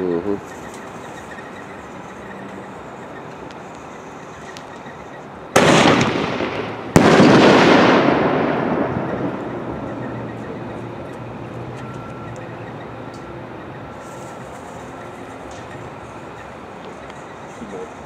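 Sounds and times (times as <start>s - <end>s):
firework shell bang with echo: 5.6s - 9.7s
firework launch boom: 5.6s - 9.8s.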